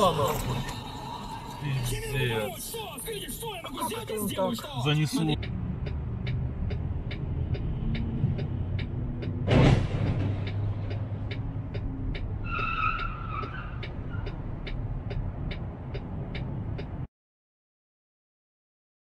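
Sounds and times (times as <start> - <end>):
vehicle engine and road noise: 0.0 - 17.1
rapid even ticking: 1.9 - 9.4, 10.0 - 17.1
wavering squeal: 12.4 - 14.4.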